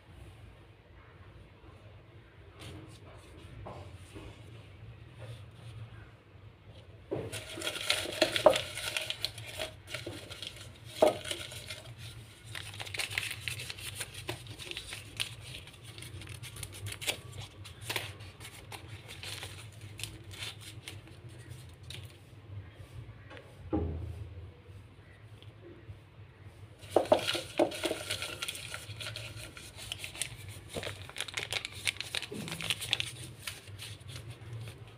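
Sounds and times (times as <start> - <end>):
paper crinkling and tearing: 7.3 - 22.2, 26.8 - 34.9.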